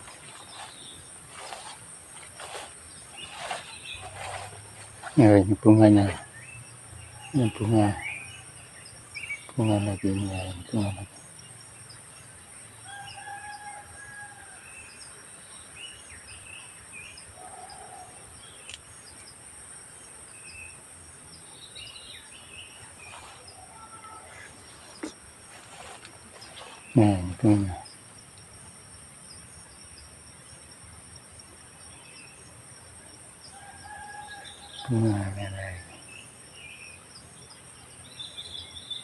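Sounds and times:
bird chirps: 0.0s - 12.0s
insects droning: 0.0s - 39.0s.

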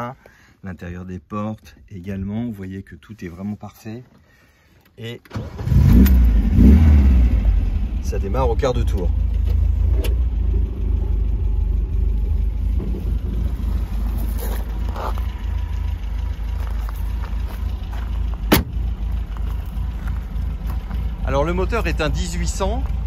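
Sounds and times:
car engine idling: 6.1s - 23.0s.

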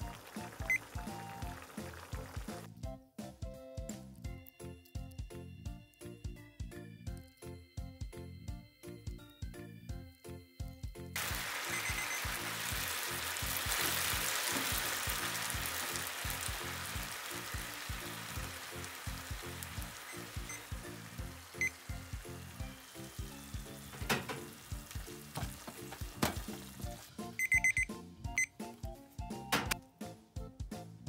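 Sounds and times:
pasta sizzling and bubbling in pan: 0.0s - 2.7s, 11.2s - 27.4s.

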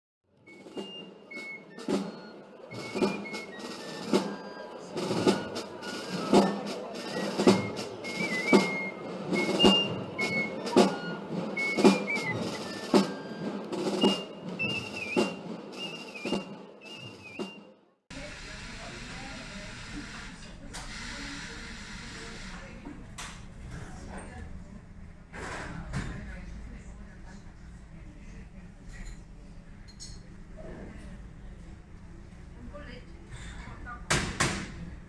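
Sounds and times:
background music with drum beat: 0.5s - 17.7s.

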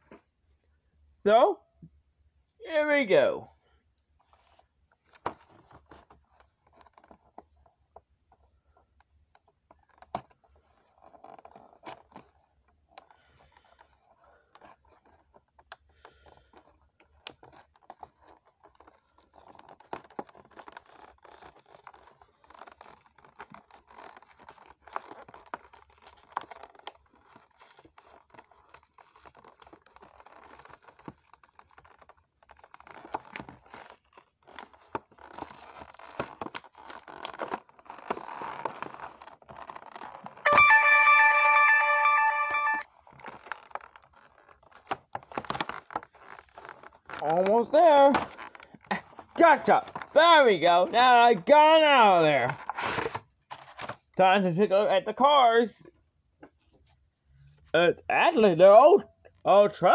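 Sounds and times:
packaging scratching and crinkling: 9.8s - 40.4s, 43.0s - 47.4s, 48.2s - 50.2s.

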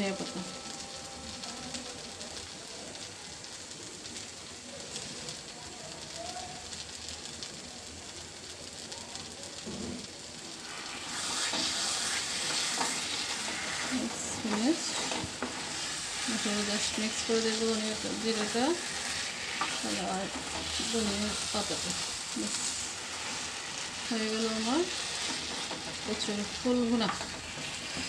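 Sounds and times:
curry sizzling in a frying pan: 0.0s - 28.0s
spatula scraping a pan: 10.7s - 28.0s.

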